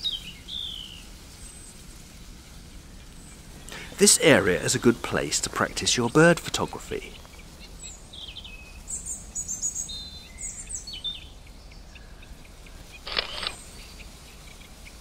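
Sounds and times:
birds chirping: 3.1s - 14.9s
short harsh bird rattle: 13.1s - 13.6s.

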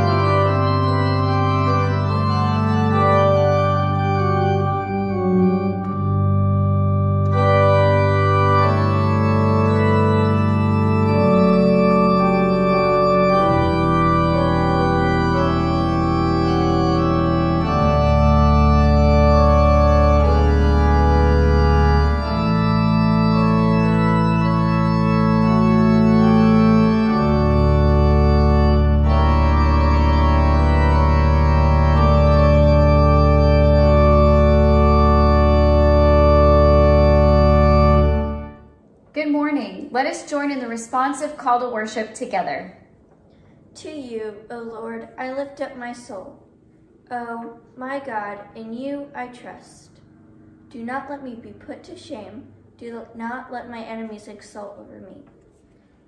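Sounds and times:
organ playing slow chords: 0.0s - 38.9s.

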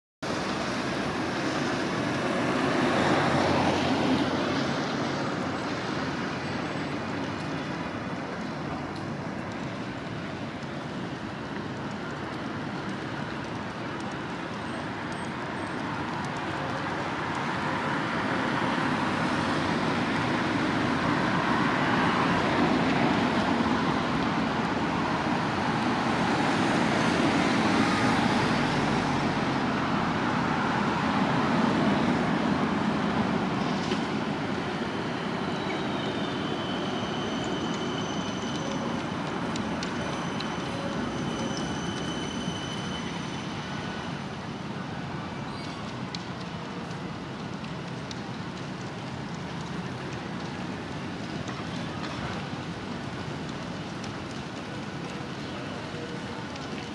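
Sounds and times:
city street traffic: 0.2s - 56.9s.

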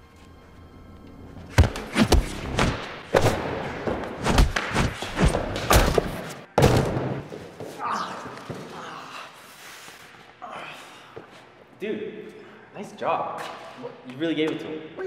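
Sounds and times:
punch and kick hits: 1.5s - 7.3s.

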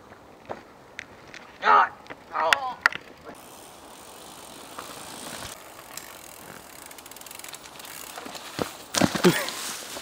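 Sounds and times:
bike tyres on loose soil: 0.0s - 10.0s
bicycle rear hub ticking: 2.2s - 8.8s.

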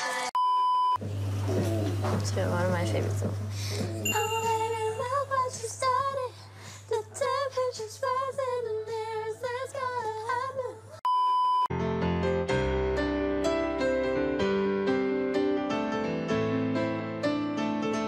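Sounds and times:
woman singing unaccompanied: 1.5s - 11.0s
test-tone beep: 11.1s - 11.7s
piano music: 11.7s - 18.0s.

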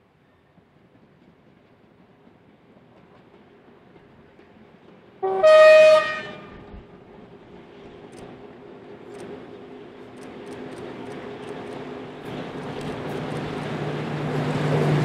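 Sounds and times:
locomotive whistle blast: 5.2s - 6.4s.

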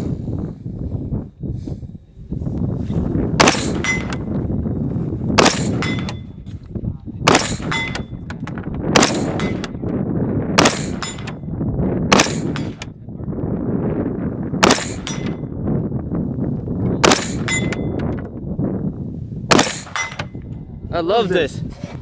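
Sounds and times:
steel plate target clanging: 3.4s - 4.2s, 5.4s - 6.3s, 7.3s - 8.3s, 10.6s - 11.4s, 12.2s - 12.9s, 14.7s - 15.5s, 17.1s - 18.1s, 19.6s - 20.4s
rifle shots: 3.4s - 4.3s, 5.4s - 6.2s, 7.2s - 8.1s, 8.9s - 9.8s, 10.6s - 11.4s, 12.1s - 12.9s, 14.6s - 15.4s, 17.0s - 17.8s, 19.5s - 20.3s.

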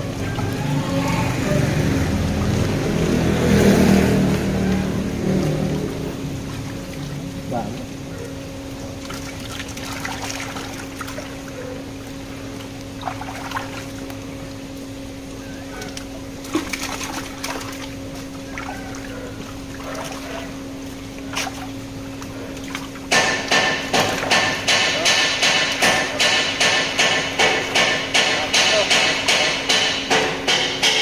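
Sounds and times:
water splashes: 0.0s - 24.6s
steady low hum: 0.0s - 30.9s
water pouring into plastic tubs: 8.9s - 14.3s, 16.4s - 20.6s.

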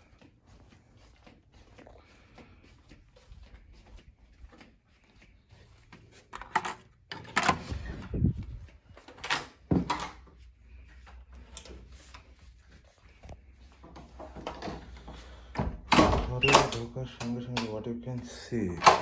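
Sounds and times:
heavy door thumps: 15.6s - 16.5s.

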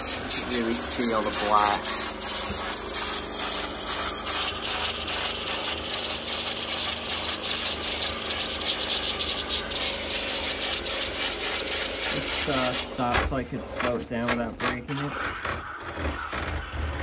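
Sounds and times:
water spray hissing: 0.0s - 13.4s.

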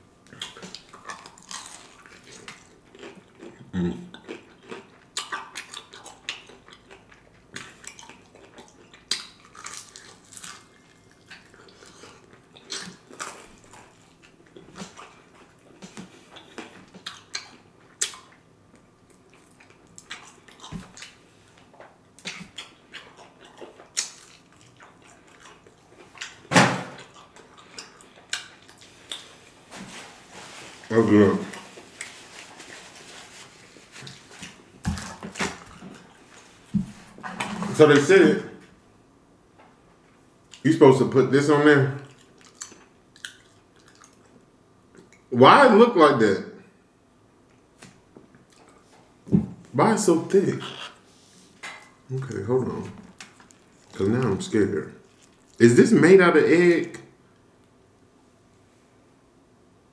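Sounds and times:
person chewing crunchy food: 0.2s - 37.2s, 42.0s - 45.2s, 47.8s - 49.2s, 50.6s - 55.7s.

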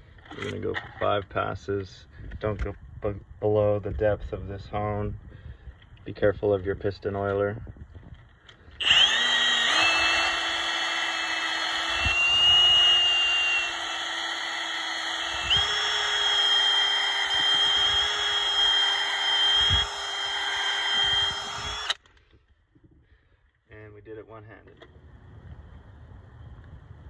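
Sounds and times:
drill motor whine: 8.8s - 22.0s.

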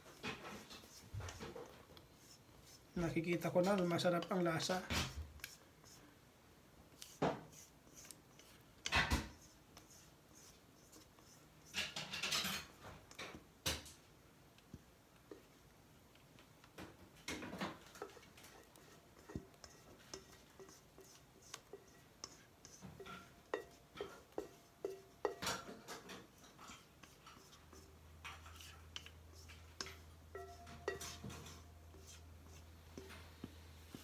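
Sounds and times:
spatula scraping a steel bowl: 0.0s - 6.0s, 7.0s - 12.8s, 17.8s - 33.2s.

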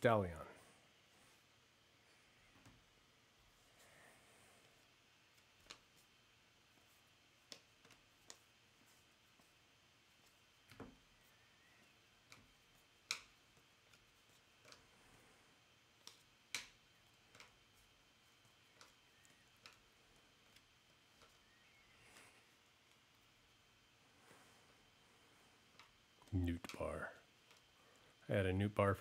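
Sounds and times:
trading cards clicking on table: 5.4s - 5.9s, 7.4s - 8.4s, 11.8s - 14.8s, 16.0s - 17.6s, 18.3s - 21.5s.

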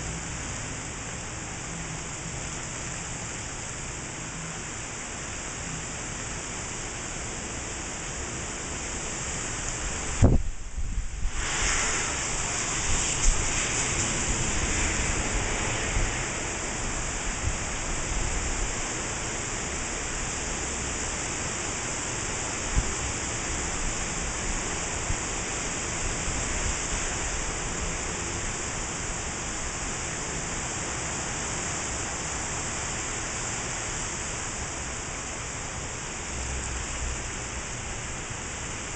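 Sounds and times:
heavy rain hissing: 0.0s - 38.9s
gusting wind: 8.2s - 38.9s.

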